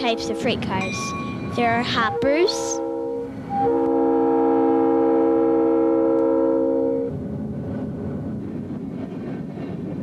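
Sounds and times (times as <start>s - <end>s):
freight train rumbling past: 0.0s - 10.0s
locomotive air horn: 2.0s - 7.2s.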